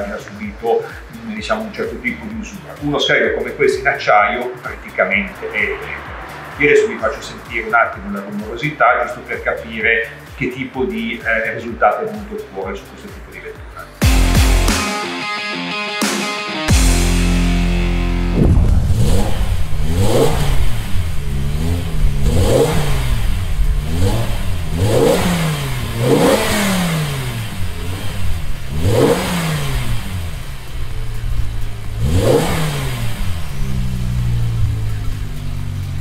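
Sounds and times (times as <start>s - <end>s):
car engine revving: 0.0s - 10.3s, 16.7s - 36.0s.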